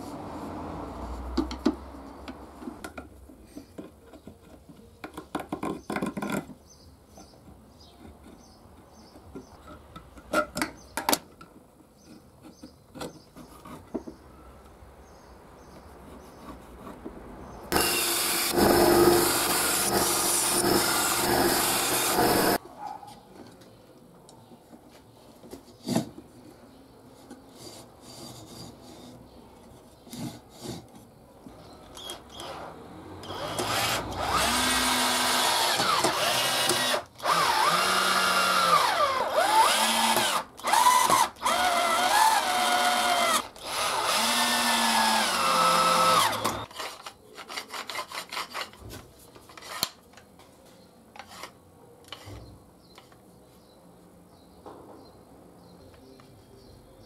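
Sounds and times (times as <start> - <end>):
wood and metal parts tapping: 1.4 - 14.2
power tool running: 17.7 - 22.6, 33.2 - 46.7.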